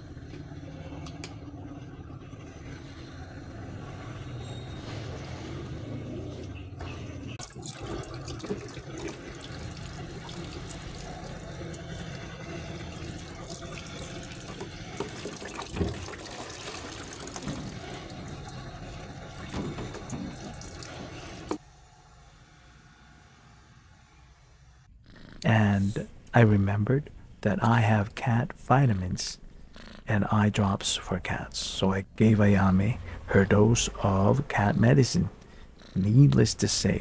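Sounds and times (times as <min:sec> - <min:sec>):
water splashing in a tub: 0:07.4 - 0:21.6.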